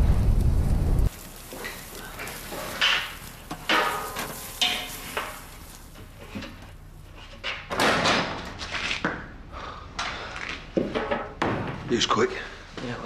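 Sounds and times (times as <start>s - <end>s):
fire crackling and hissing: 0.0s - 7.7s.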